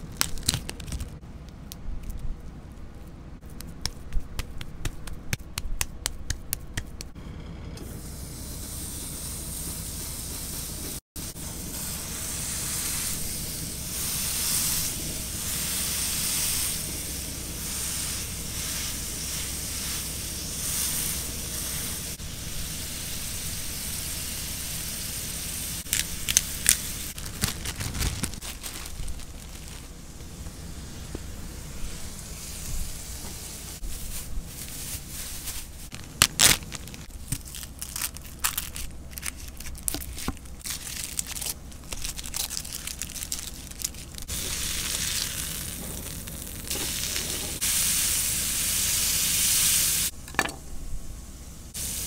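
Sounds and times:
plastic bag crinkling: 0:00.0 - 0:01.2, 0:25.9 - 0:30.1, 0:33.8 - 0:47.4
plastic wrap crinkling: 0:00.0 - 0:01.2, 0:25.9 - 0:30.2, 0:33.8 - 0:47.6
burger patty sizzling in skillet: 0:08.0 - 0:38.1, 0:41.9 - 0:50.2.

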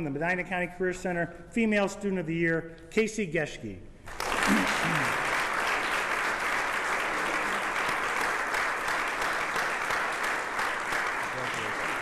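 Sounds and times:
audience applauding: 0:04.1 - 0:12.0.

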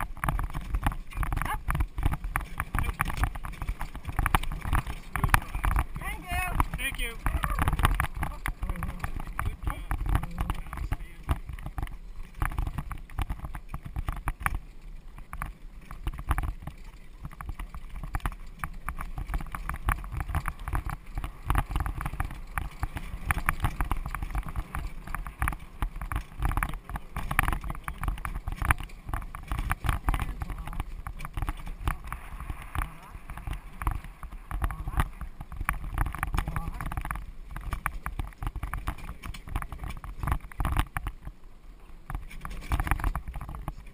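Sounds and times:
carriage wheels knocking and rattling: 0:00.0 - 0:41.4, 0:42.0 - 0:43.9
horse hoofbeats: 0:00.0 - 0:41.4.

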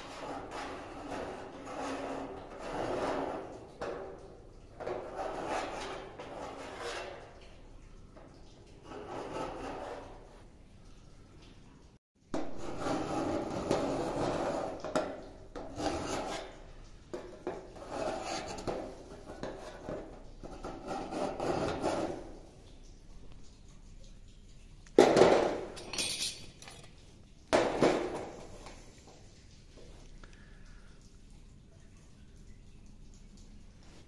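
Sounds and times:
scriber scraping steel sheet: 0:05.0 - 0:07.4.

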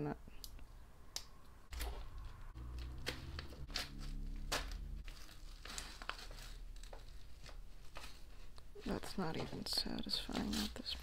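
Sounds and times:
paper crinkling and tearing: 0:02.8 - 0:11.0.

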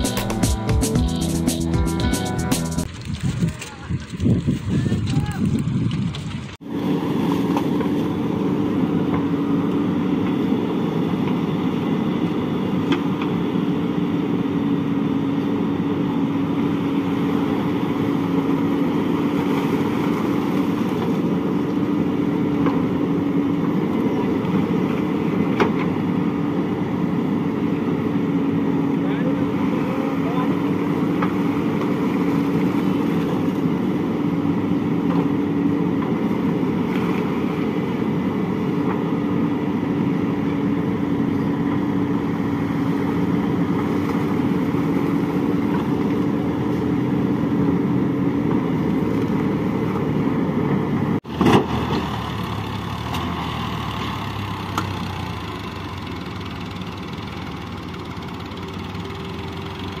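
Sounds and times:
diesel engine running: 0:00.0 - 1:00.0.

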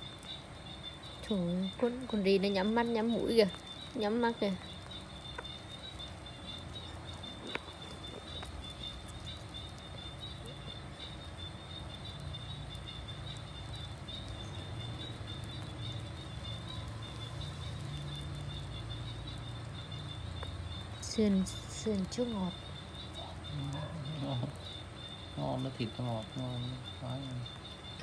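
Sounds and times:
small animals chewing clicks: 0:00.0 - 0:28.0.

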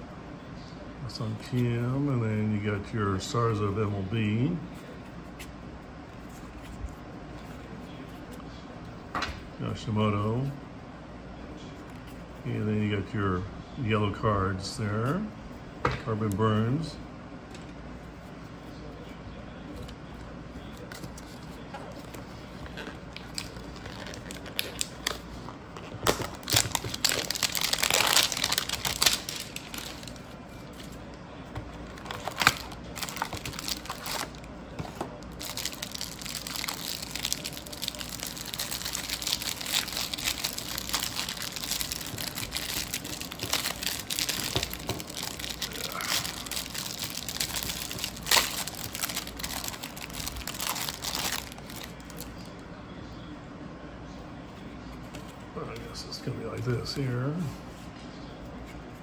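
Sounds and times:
plastic wrapping crinkling: 0:20.9 - 0:31.0, 0:31.8 - 0:52.5.

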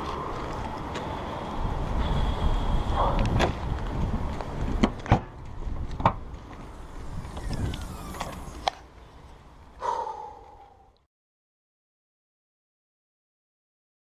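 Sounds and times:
short falling tone: 0:06.5 - 0:08.8.

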